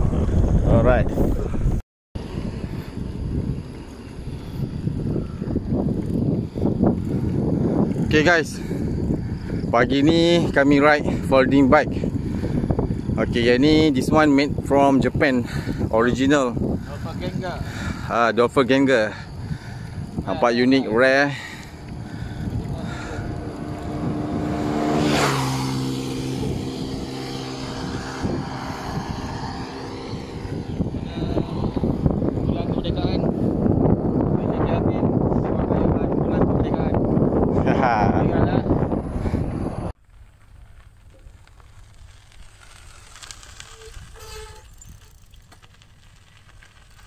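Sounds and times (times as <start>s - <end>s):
wind rumble on microphone: 0.0s - 47.0s
vehicle passing by: 2.2s - 18.2s, 19.2s - 34.6s
bicycle tyres crunching on gravel: 2.2s - 34.2s, 39.2s - 47.0s.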